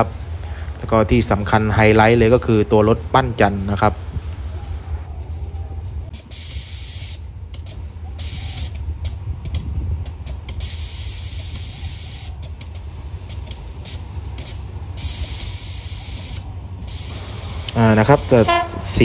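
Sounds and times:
compressed air hissing: 0.0 - 5.1, 6.1 - 19.0
diesel locomotive idling: 0.0 - 19.0.

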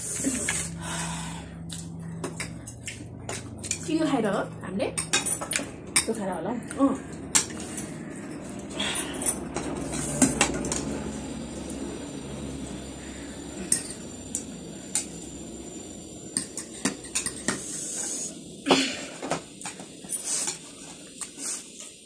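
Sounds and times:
utensils clicking on bowls: 1.7 - 4.1, 4.9 - 10.9, 13.6 - 15.1, 16.3 - 17.8.

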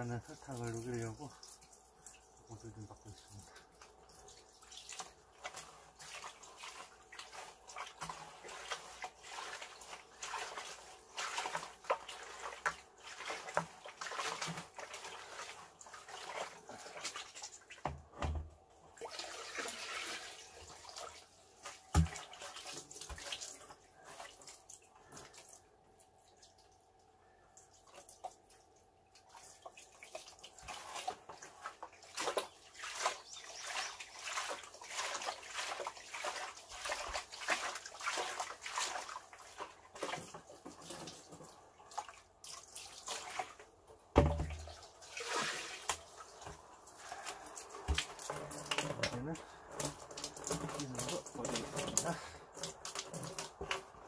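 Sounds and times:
hose water splashing into bucket: 0.0 - 26.8, 27.6 - 54.0
plastic bucket knocks: 17.8 - 18.6, 21.9 - 22.2, 44.1 - 44.7.

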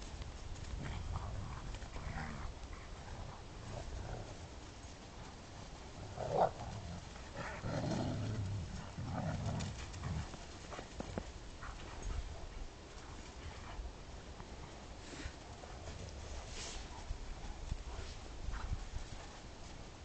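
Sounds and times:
dogs growling: 0.8 - 4.5, 5.9 - 11.0.

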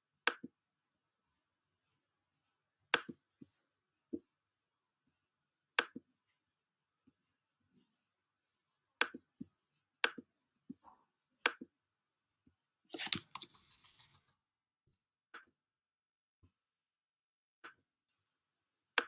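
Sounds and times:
computer mouse clicks: 12.9 - 14.0.

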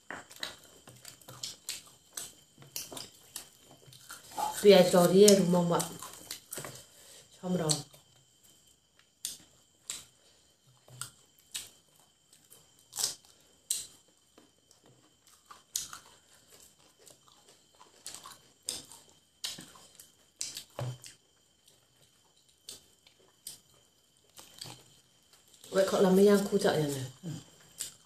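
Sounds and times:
crisp crunching of fried chicken: 0.1 - 6.9.

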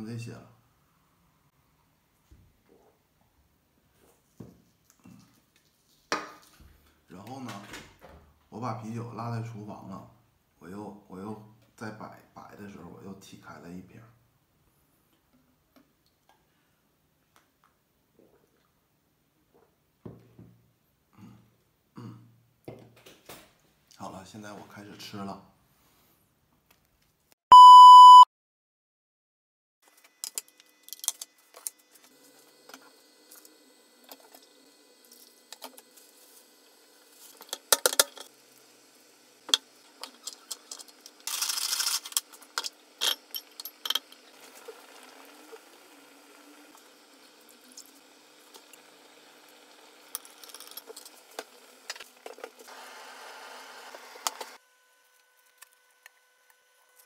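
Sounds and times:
test-tone beep: 27.5 - 28.3
sink water rush: 43.8 - 52.9.

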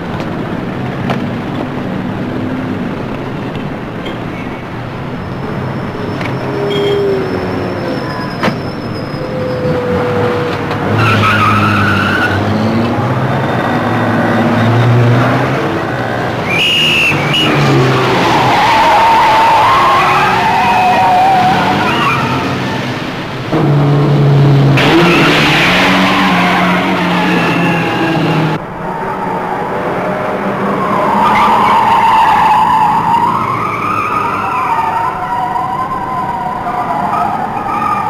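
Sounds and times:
car engines revving hard: 0.0 - 38.0
tyres squealing: 4.0 - 14.7, 16.4 - 22.8.

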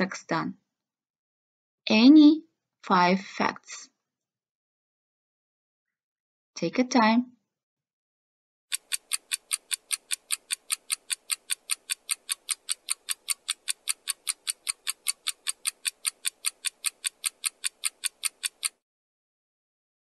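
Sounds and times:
clock ticking: 8.7 - 18.8.

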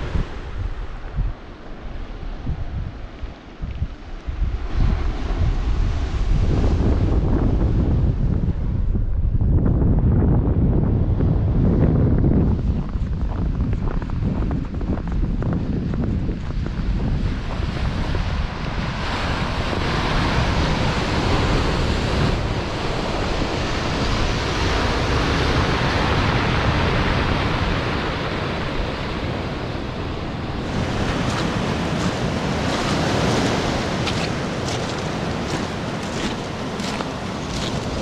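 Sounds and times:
wind buffeting microphone: 0.0 - 38.0
waves breaking on pebble shore: 17.5 - 38.0.

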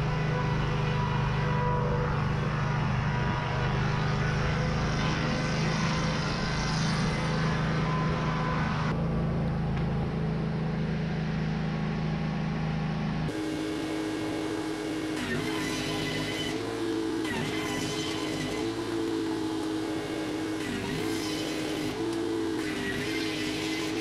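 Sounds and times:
board edger droning: 0.0 - 24.0.

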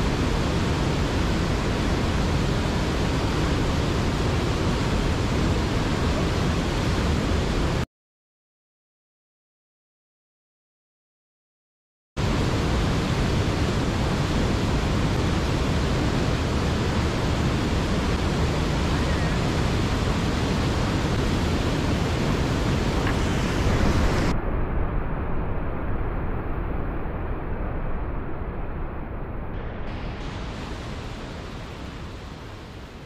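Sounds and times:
waterfall and whitewater roaring: 0.0 - 7.8, 12.2 - 25.9, 29.1 - 33.0.

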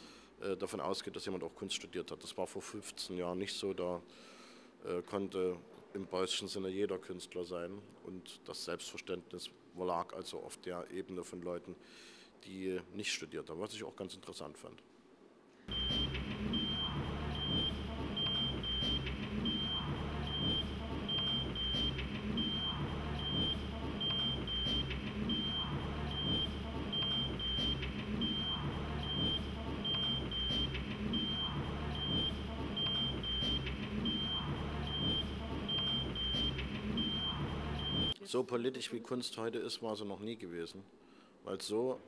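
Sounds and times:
looping pattern: 15.7 - 38.2
low hum: 15.7 - 38.2
short high electronic beeps: 15.7 - 38.2.

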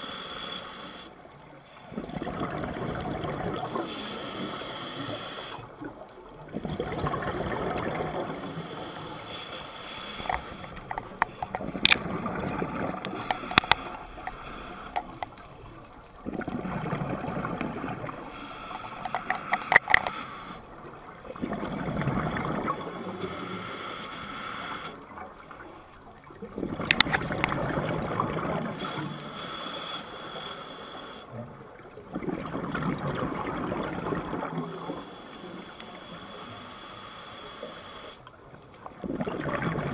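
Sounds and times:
regulator inhalations: 0.0 - 1.2, 3.7 - 5.7, 8.4 - 12.0, 13.0 - 15.4, 18.2 - 20.7, 23.0 - 25.0, 28.7 - 31.3, 34.8 - 38.3
exhaled bubbles gurgling underwater: 0.8 - 29.4, 31.3 - 36.2, 38.3 - 39.9
sharp clicks and pops: 10.1 - 15.5, 18.6 - 20.6, 26.8 - 27.6.

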